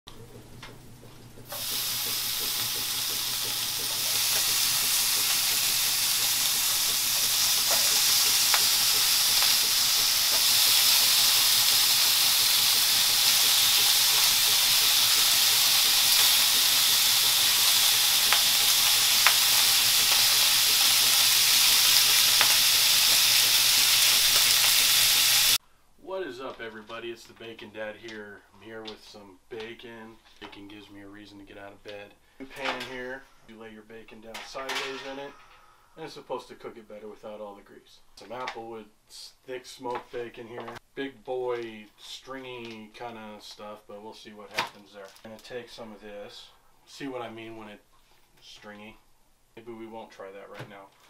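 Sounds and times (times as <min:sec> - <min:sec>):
bacon sizzling in a frying pan: 0:01.4 - 0:25.6.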